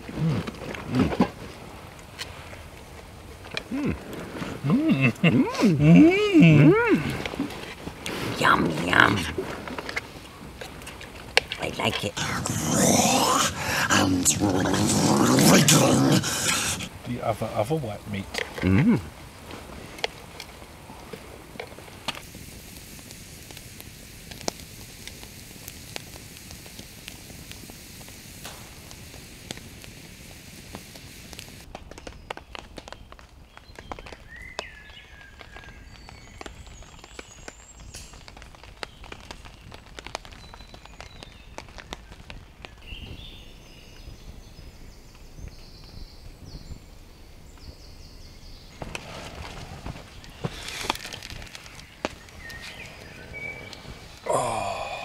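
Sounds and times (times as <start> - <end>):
water dripping onto a tarp: 0.0 - 46.1, 48.6 - 55.0
campfire crackling and popping: 0.0 - 55.0
steady low hiss: 0.0 - 55.0
small birds singing: 31.8 - 55.0
rustling: 48.6 - 54.3.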